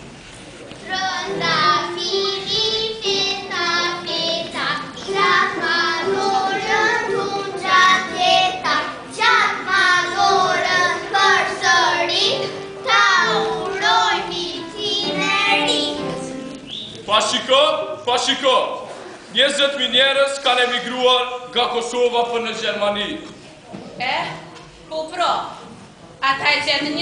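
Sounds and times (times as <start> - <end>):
child singing: 0.8 - 16.2.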